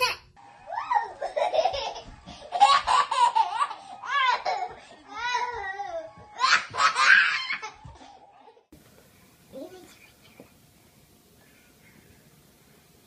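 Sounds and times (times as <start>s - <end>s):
toddler laughing: 0.9s - 5.5s, 6.4s - 7.9s.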